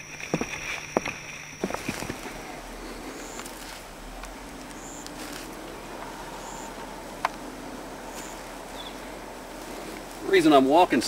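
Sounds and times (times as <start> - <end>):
footsteps swishing through grass: 5.0 - 5.6.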